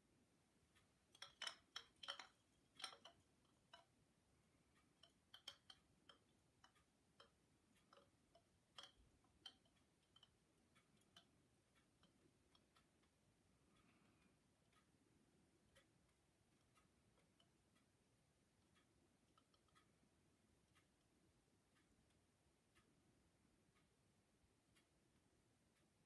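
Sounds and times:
bamboo wind chime clacks: 1.1s - 3.8s.

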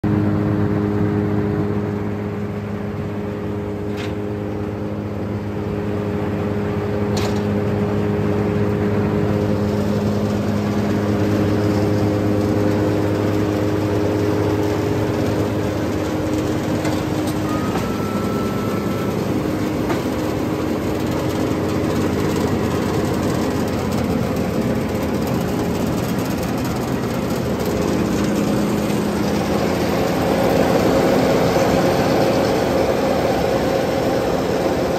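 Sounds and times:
chipper engine running: 0.0s - 34.9s
short high whistle: 17.4s - 19.2s.

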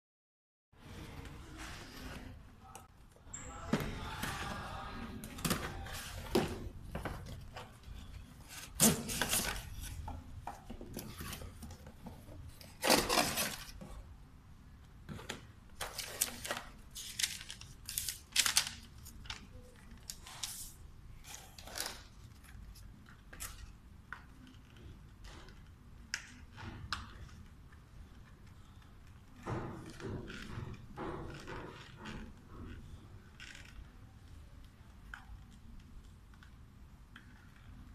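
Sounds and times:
cardboard packaging rustling: 10.7s - 14.0s.

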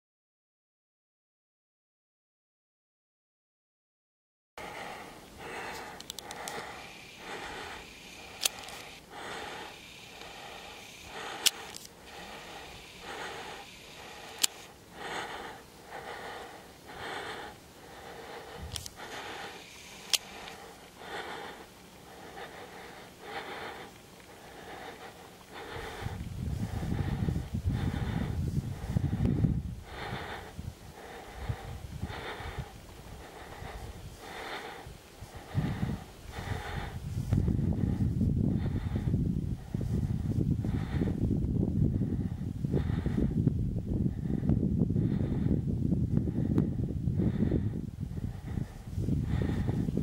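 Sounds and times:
person breathing: 4.6s - 50.0s
sharp clicks: 5.7s - 14.8s, 18.4s - 21.5s.

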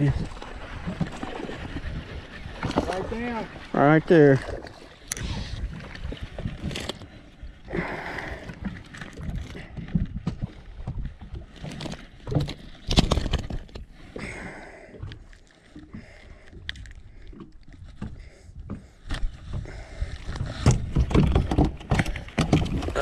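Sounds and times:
water slapping boat hull: 0.0s - 23.0s
knocks against hull: 20.4s - 23.0s.

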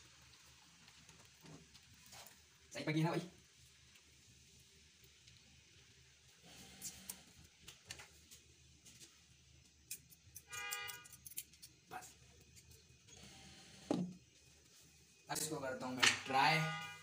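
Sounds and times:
short horn-like tone: 10.5s - 11.1s, 16.3s - 17.0s.

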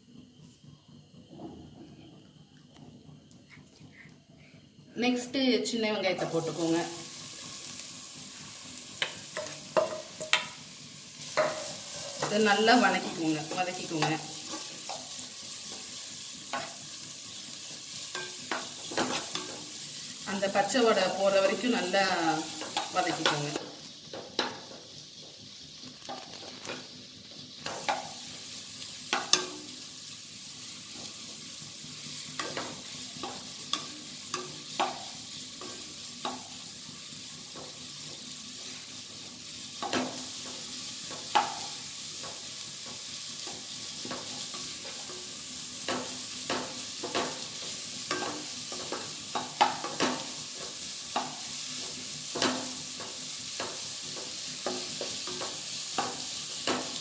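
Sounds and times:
shallots sizzling in oil: 5.0s - 57.0s.

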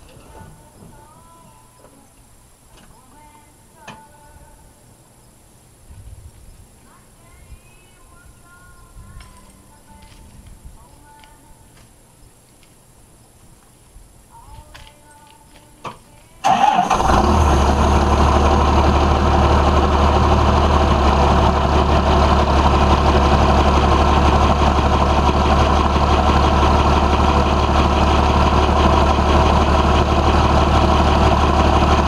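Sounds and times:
diesel engine starting and idling: 16.4s - 32.0s.

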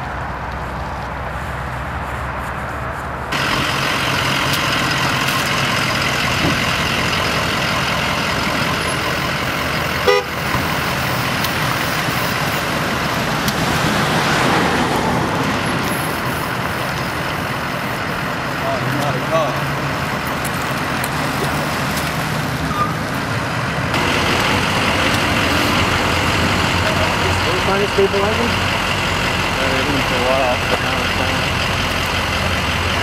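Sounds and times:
emergency vehicle engines running: 0.0s - 33.0s
short horn toot: 10.0s - 10.4s.

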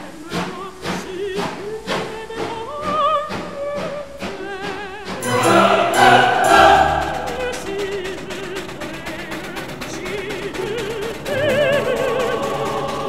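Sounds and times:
choir-like singing with music: 4.1s - 13.0s.

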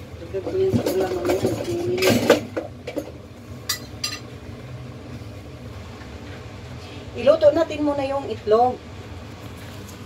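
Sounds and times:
steady low hum: 0.0s - 10.0s
metal cookware clinking: 3.7s - 4.3s.

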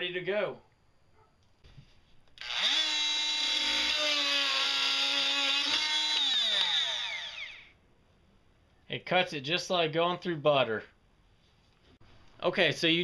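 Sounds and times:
oscillating multi-tool cutting nail: 2.4s - 7.7s.

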